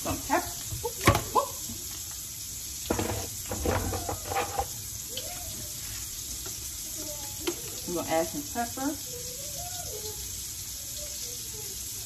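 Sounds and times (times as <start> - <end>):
sausages sizzling in a frying pan: 0.0 - 12.0
containers knocking and clattering: 0.6 - 1.4, 2.9 - 4.8.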